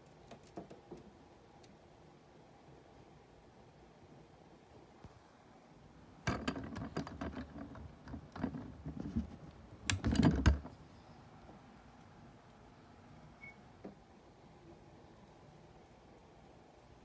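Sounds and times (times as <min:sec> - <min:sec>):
objects being handled: 0:06.3 - 0:10.8.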